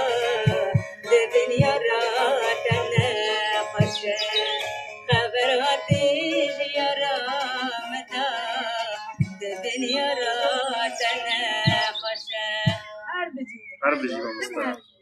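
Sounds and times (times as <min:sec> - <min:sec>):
low thumps: 0:00.0 - 0:06.2
instrumental accompaniment: 0:00.0 - 0:13.1
person singing ornamented melody: 0:00.0 - 0:14.8.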